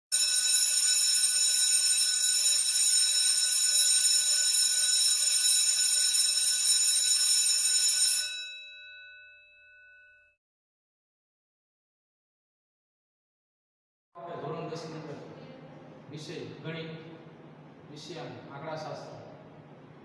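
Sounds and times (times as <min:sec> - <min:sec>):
high metallic ringing: 0:07.6 - 0:10.4.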